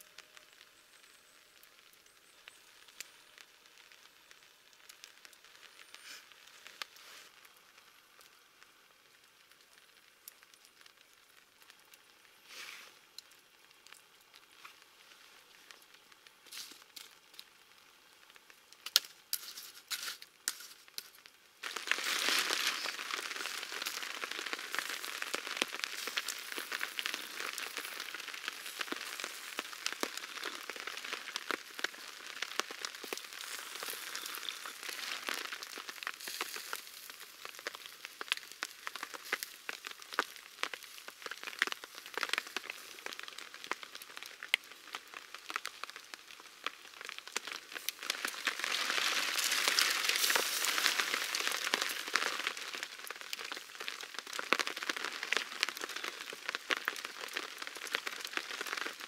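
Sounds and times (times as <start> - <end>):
rain pattering on a tarp: 0.0 - 59.0.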